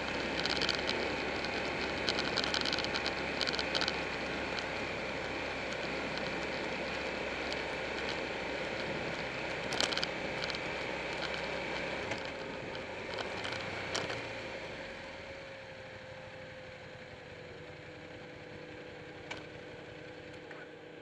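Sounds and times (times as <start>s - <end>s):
sharp rattles: 0.0s - 14.3s
wind and road noise: 0.0s - 20.5s
motorcycle engine rumble: 0.0s - 21.0s.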